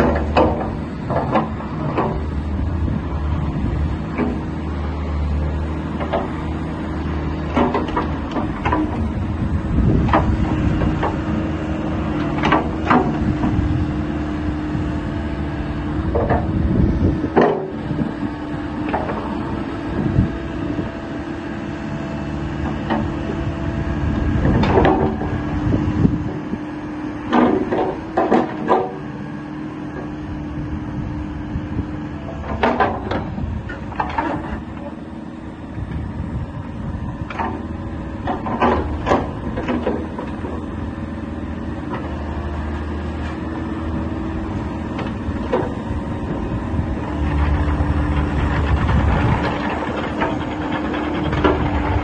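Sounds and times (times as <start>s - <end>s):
diesel engine running: 0.0s - 52.0s
metallic clanks and knocks: 7.5s - 9.0s, 32.4s - 34.9s.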